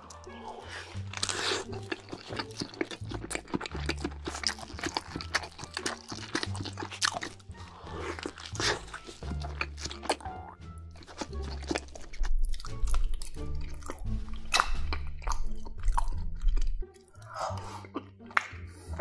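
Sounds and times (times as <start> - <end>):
background music with low bass: 0.0 - 19.0
crunchy chewing: 0.0 - 19.0.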